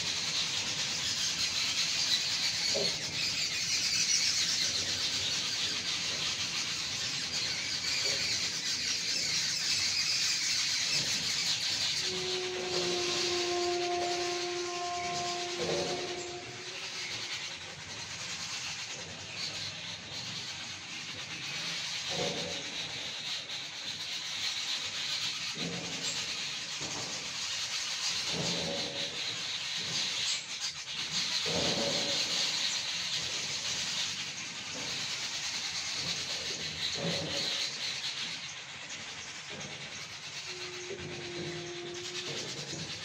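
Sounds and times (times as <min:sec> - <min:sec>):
flock of small birds chirping: 0:00.0 - 0:43.0.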